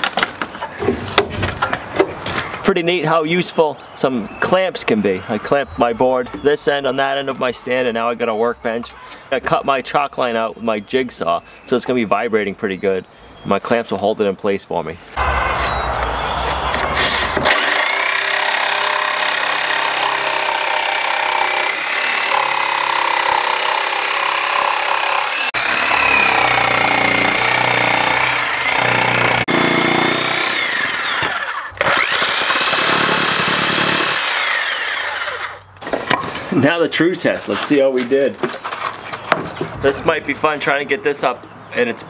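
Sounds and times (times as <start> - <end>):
jigsaw cutting wood: 17.0 - 35.6.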